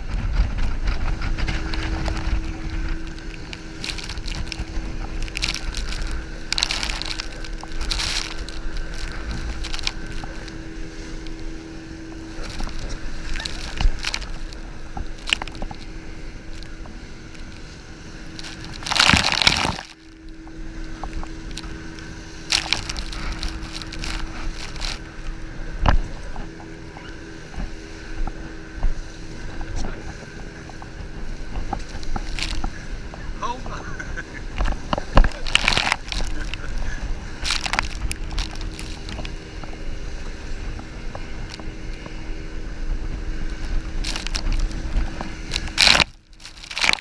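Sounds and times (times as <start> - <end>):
rushing water and spray: 0.0 - 47.0
speedboat engine drone: 0.0 - 47.0.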